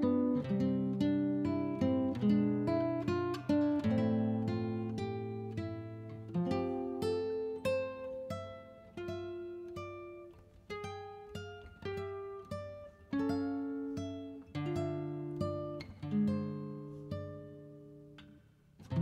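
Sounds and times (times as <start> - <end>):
plucked acoustic guitar: 0.0 - 19.0.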